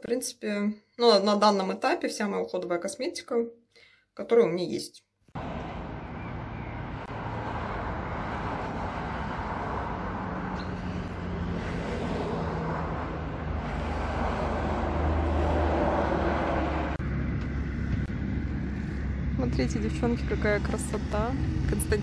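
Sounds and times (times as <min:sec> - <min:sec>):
outdoor ambient rumble and hiss: 0:13.1 - 0:22.0.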